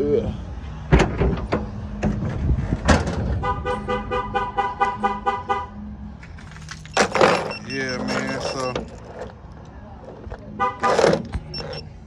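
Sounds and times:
vehicle warning chime beeping: 0:06.9 - 0:09.0, 0:11.4 - 0:12.0.

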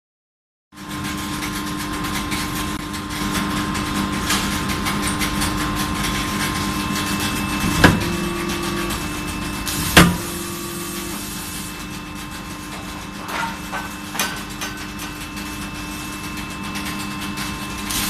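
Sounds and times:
machinery hum: 0:02.6 - 0:18.0
loud metallic clank: 0:07.6 - 0:09.0, 0:09.7 - 0:10.8.

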